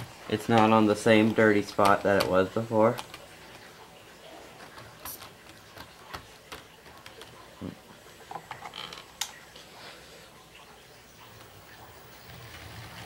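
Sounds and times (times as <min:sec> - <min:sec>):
small clicks and light taps: 0:00.0 - 0:03.8.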